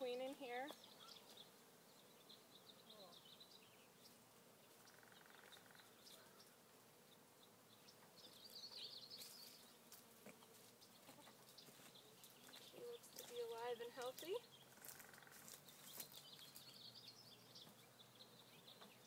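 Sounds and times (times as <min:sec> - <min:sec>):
honey bees buzzing: 0:00.0 - 0:19.0
bird twittering: 0:00.7 - 0:01.6, 0:04.8 - 0:06.6.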